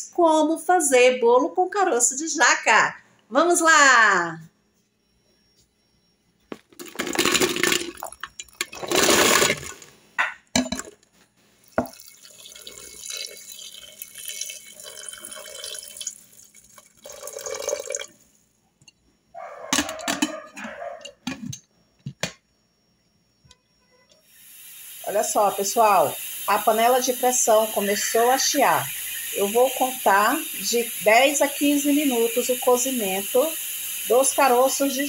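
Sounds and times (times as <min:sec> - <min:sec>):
water pouring from a jug: 0:06.8 - 0:09.8, 0:11.6 - 0:18.2.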